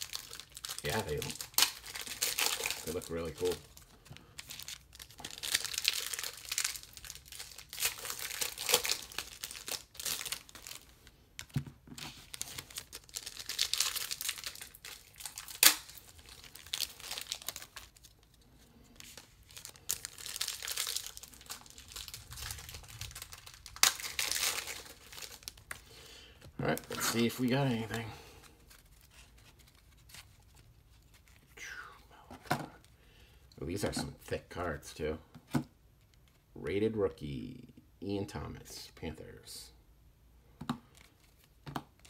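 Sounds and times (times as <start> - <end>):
wrappers crinkling and tearing: 0.0 - 25.9, 26.6 - 31.6.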